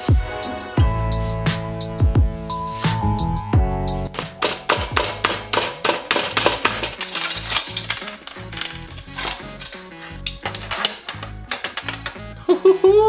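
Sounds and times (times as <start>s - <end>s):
background music with beat: 0.0s - 13.0s
metal tools clinking: 4.2s - 12.4s.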